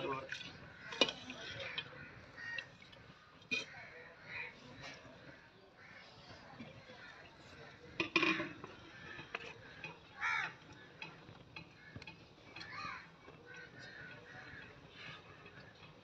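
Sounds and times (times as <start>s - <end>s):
metal ladle clinking on pot: 0.3s - 2.0s, 3.4s - 3.8s, 7.9s - 16.0s
wood fire crackling: 7.6s - 16.0s.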